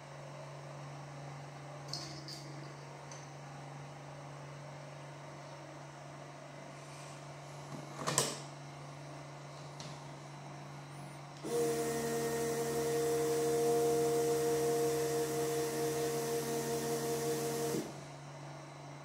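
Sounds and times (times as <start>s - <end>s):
hot air tool hiss and hum: 11.4s - 18.2s.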